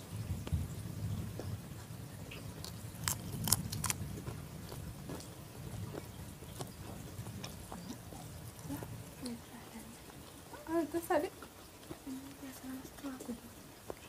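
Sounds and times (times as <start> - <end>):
people chewing: 0.0 - 14.0
sharp crunches: 2.6 - 8.3.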